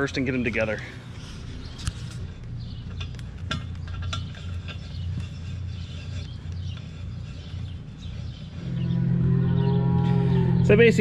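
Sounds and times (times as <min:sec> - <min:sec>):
low steady rumble: 0:07.8 - 0:11.0.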